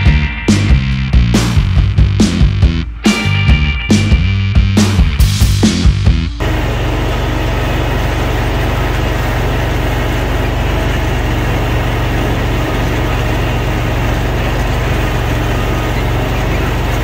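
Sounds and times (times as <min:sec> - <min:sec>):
mower engine running: 0:06.4 - 0:17.0.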